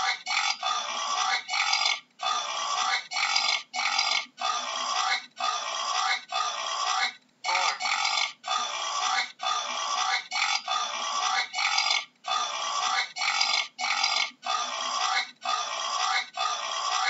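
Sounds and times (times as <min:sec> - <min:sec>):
boar calling: 0:00.0 - 0:17.0.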